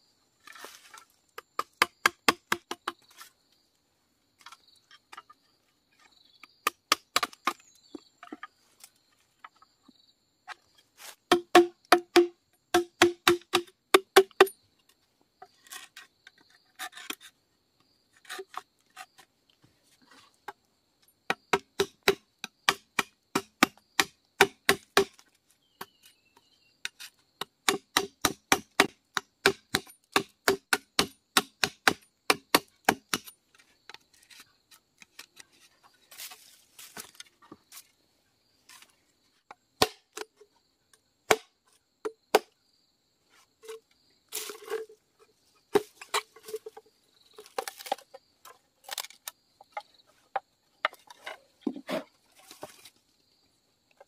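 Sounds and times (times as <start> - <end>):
machete chopping bamboo: 1.4 - 3.0, 6.6 - 7.6, 11.3 - 14.5, 21.3 - 25.2, 26.8 - 33.3, 39.8 - 40.3, 41.3 - 42.6.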